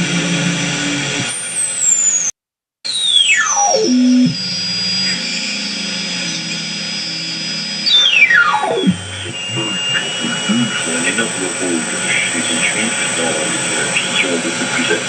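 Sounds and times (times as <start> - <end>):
radio whistling beat notes: 2.9 - 15.0
steady radio tones: 3.3 - 15.0
radio band noise hiss: 5.0 - 15.0.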